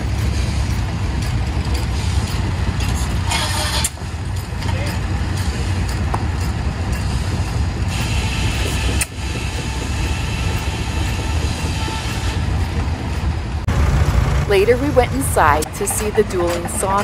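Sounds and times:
sawmill machinery engine rumble: 0:00.0 - 0:17.0.

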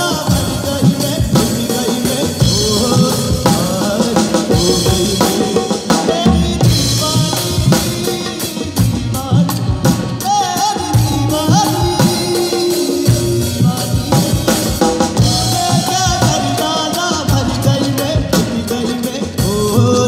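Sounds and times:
drum kit beat: 0:00.0 - 0:20.0
flute melody: 0:09.8 - 0:17.5.

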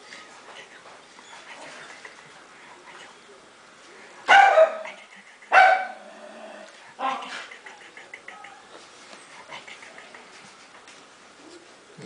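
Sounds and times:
dog barking: 0:04.3 - 0:06.0.

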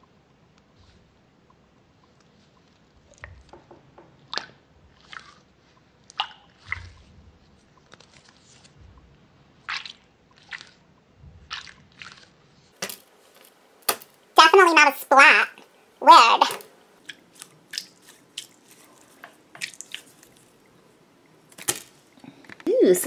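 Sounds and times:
squishy ball squelching: 0:04.2 - 0:08.8, 0:09.5 - 0:12.8, 0:16.0 - 0:22.2.

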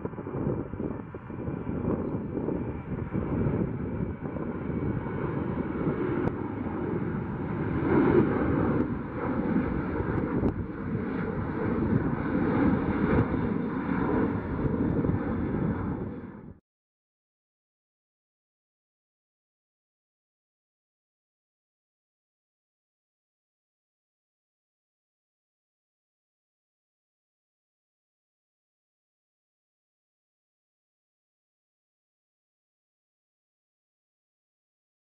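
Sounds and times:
jet engine rumble: 0:00.0 - 0:16.6.

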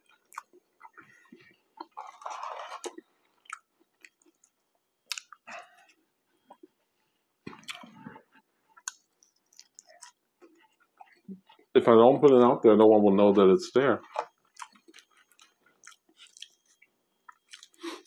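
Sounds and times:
person chewing food: 0:00.0 - 0:11.7, 0:14.0 - 0:18.0
lip smacks: 0:05.1 - 0:05.4.

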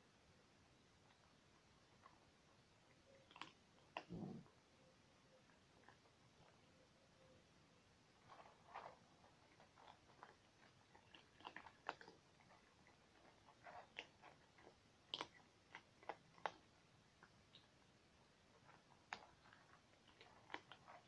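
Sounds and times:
cats chewing food: 0:00.7 - 0:04.5, 0:05.2 - 0:07.0, 0:07.9 - 0:21.0.

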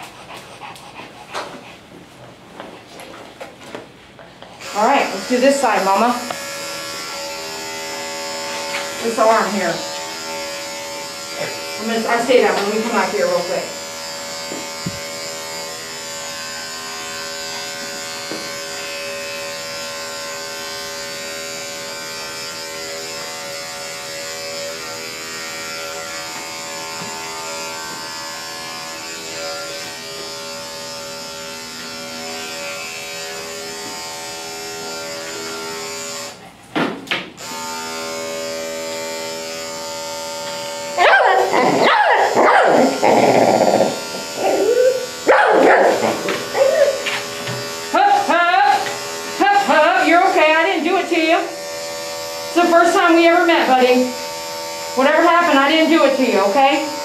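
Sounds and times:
electric clippers humming: 0:04.5 - 0:57.0
dog barking loudly: 0:41.0 - 0:43.0, 0:44.5 - 0:47.1.

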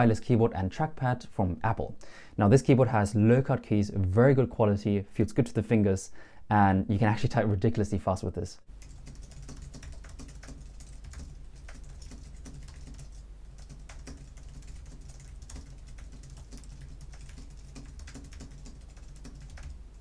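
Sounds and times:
fast typing on keyboard: 0:08.7 - 0:19.8.

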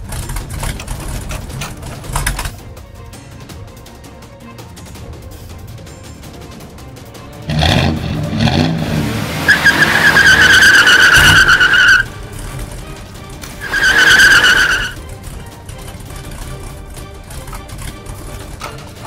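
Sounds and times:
background music: 0:00.0 - 0:19.0
race car engine revving: 0:07.4 - 0:19.0
tyre screech: 0:09.4 - 0:12.5, 0:13.4 - 0:15.1.

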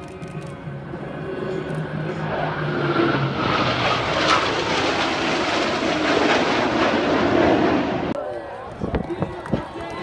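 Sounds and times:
jet engines roaring overhead: 0:00.0 - 0:10.0.

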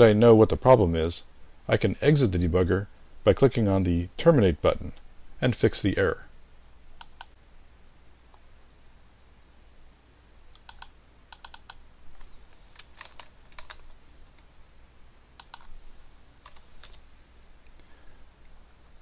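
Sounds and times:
typing on computer keyboard: 0:10.5 - 0:13.9, 0:15.4 - 0:15.7, 0:16.4 - 0:17.0.

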